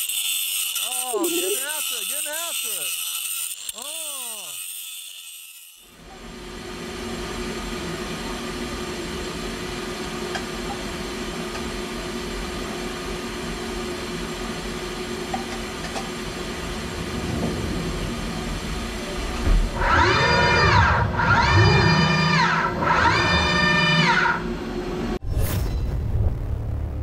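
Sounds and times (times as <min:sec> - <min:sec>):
steady machine hum: 0:05.9 - 0:25.2
machinery rumbling drone: 0:16.3 - 0:27.0.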